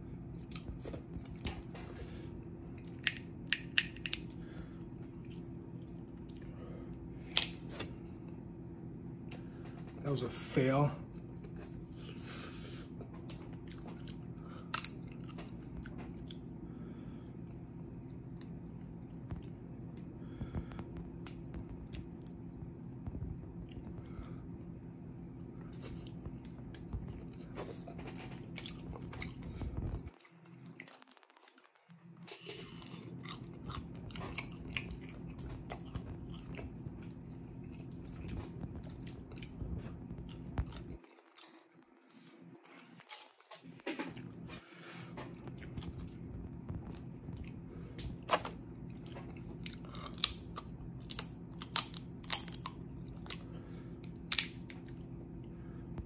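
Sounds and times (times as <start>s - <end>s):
steady low hum: 0.0s - 56.0s
wet chewing with crunching: 0.4s - 8.4s, 11.1s - 25.0s, 25.6s - 56.0s
crab shells cracking: 2.8s - 4.4s, 14.6s - 15.1s, 49.8s - 55.0s.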